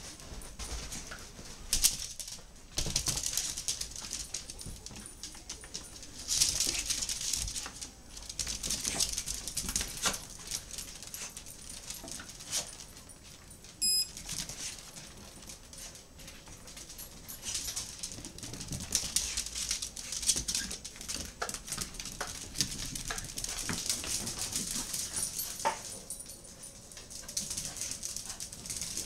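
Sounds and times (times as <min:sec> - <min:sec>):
dog claws clicking on tile: 0:01.7 - 0:13.4, 0:14.2 - 0:29.0
short high beep: 0:13.8 - 0:14.1.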